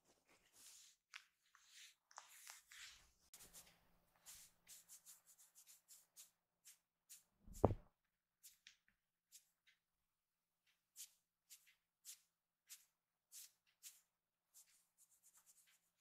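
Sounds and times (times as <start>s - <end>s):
kitten paws scratching fabric: 7.5s - 7.8s
thump: 7.5s - 7.8s.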